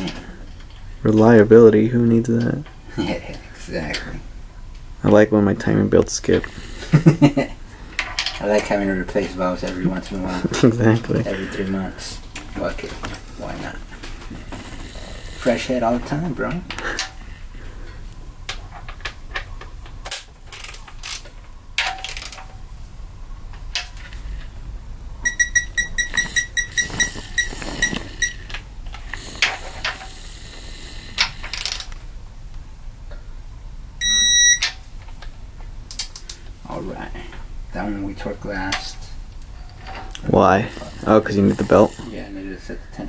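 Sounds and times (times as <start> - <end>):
tools being handled: 18.5 - 22.6
electronic beeps: 25.2 - 28.4, 34.0 - 34.7.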